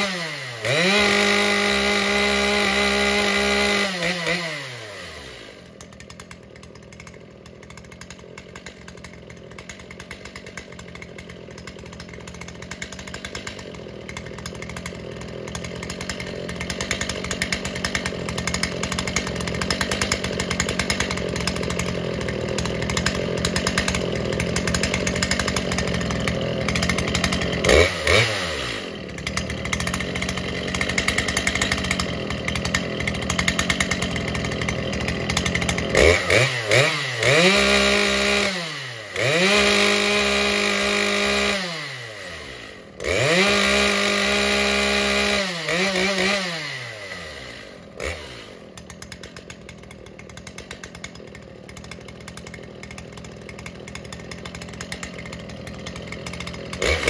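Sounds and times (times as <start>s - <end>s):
chainsaw engine revving: 0.0s - 57.0s
chainsaw idling: 0.0s - 57.0s.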